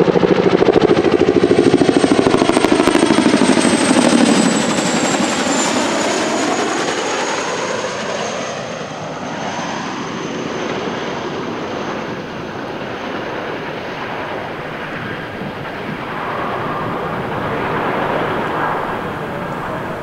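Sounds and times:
helicopter rotor and engine noise: 0.0s - 20.0s
high turbine whine: 11.2s - 20.0s.

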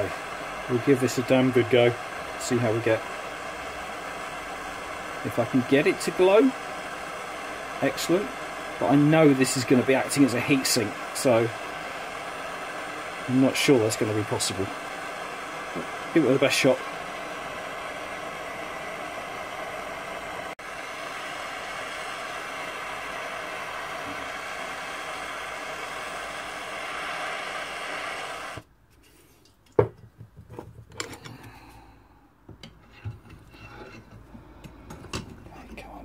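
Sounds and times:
blowtorch flame hissing: 0.0s - 28.7s.

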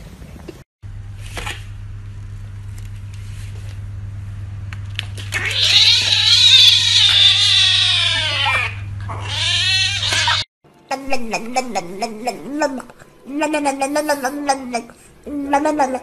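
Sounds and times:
kitten meowing: 5.4s - 10.4s.

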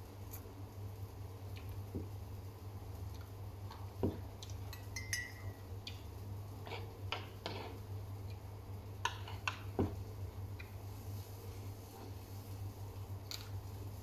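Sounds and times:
steady low hum: 0.0s - 14.0s
utensil clinking on wooden bowl: 4.7s - 5.6s.

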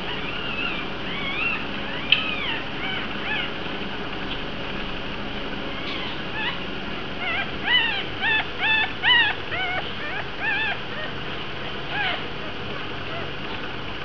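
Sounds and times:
puppies squeaking: 0.0s - 3.6s, 5.7s - 6.6s, 7.2s - 13.7s.

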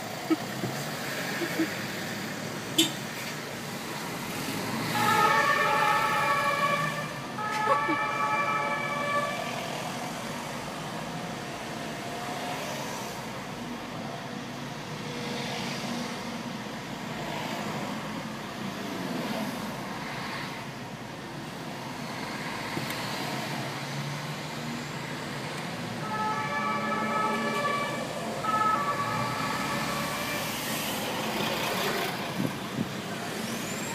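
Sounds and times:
traffic hum: 0.0s - 33.9s
police siren: 4.8s - 10.0s, 26.0s - 31.2s.

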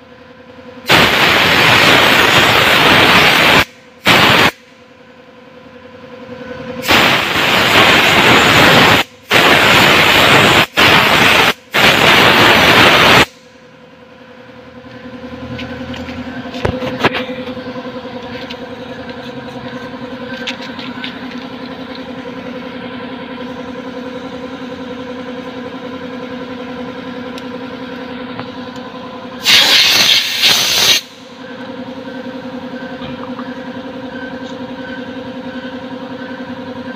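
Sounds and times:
motor hum: 0.0s - 36.9s
compressed air blasts hissing: 0.9s - 4.6s, 6.8s - 13.4s, 29.4s - 31.2s.

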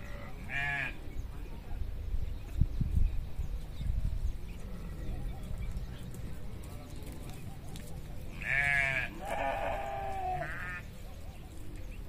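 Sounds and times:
sheep and goats bleating: 0.0s - 1.0s, 8.3s - 10.9s.

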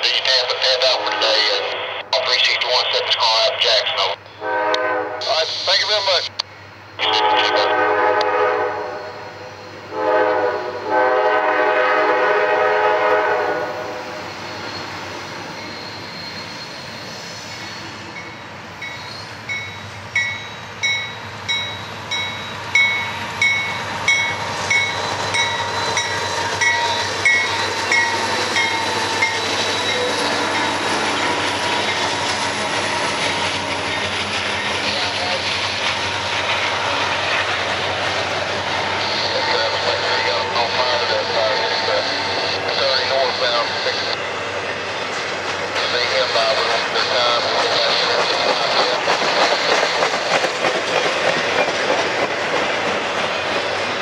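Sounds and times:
train wheels on rails: 2.4s - 54.0s
locomotive air horn blasts: 4.4s - 5.4s, 7.0s - 14.2s
crossing bell ringing: 15.5s - 16.8s, 18.1s - 30.8s.

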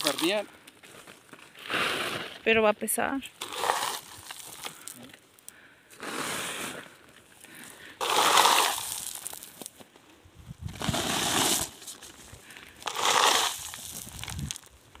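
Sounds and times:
stones scraped by hand: 0.0s - 0.4s, 1.5s - 2.6s, 3.4s - 5.0s, 5.9s - 7.0s, 7.6s - 9.8s, 10.6s - 14.8s.

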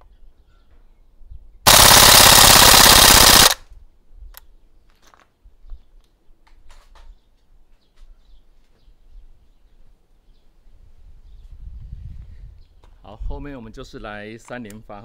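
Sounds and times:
airsoft gun full-auto burst: 1.7s - 3.6s.

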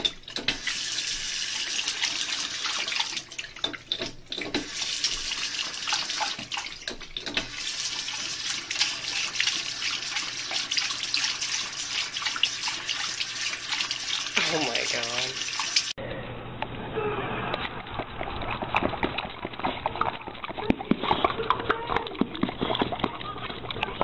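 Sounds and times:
faucet water splashing: 0.0s - 16.0s.

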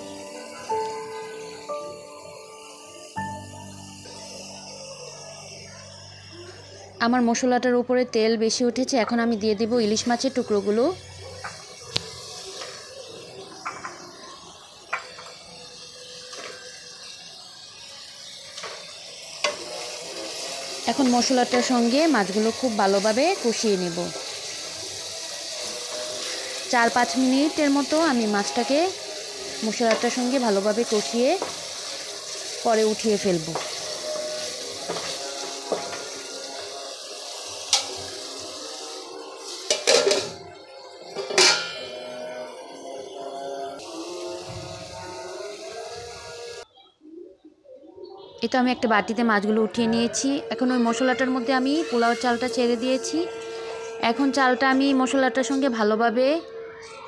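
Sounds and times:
background music: 0.0s - 6.1s
fish sizzling in hot oil: 0.0s - 7.6s, 8.5s - 46.7s, 50.0s - 55.2s
metal lid clattering on pot: 39.7s - 40.4s, 41.3s - 41.8s.

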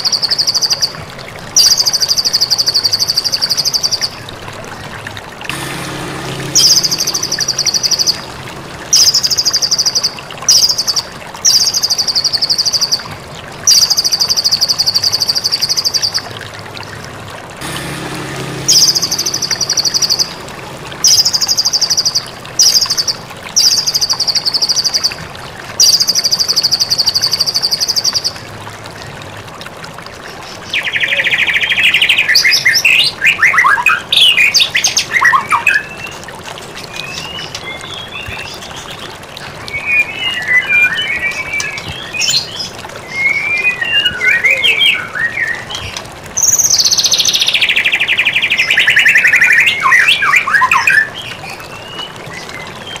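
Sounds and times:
bird singing trills: 0.0s - 1.0s, 1.6s - 4.2s, 5.5s - 13.1s, 13.7s - 16.3s, 18.3s - 25.2s, 25.8s - 28.4s, 39.7s - 53.0s
bird whistled phrases: 43.1s - 45.6s.

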